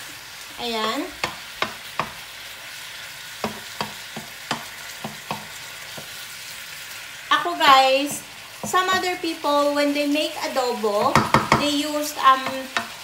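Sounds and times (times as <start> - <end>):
meat sizzling in oil: 0.0 - 13.0
spatula tapping on pan: 1.2 - 2.2, 3.4 - 6.1, 8.6 - 9.2, 11.0 - 13.0.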